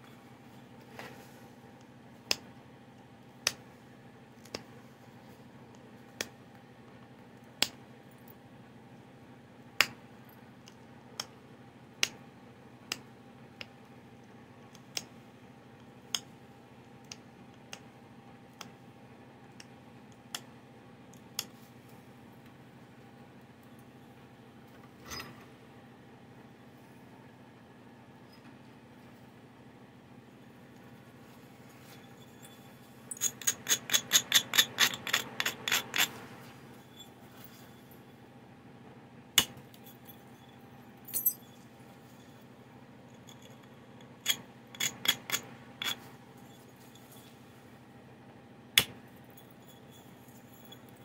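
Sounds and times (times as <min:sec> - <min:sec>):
stone knapping clicks: 0:02.3 - 0:02.5, 0:04.4 - 0:04.7.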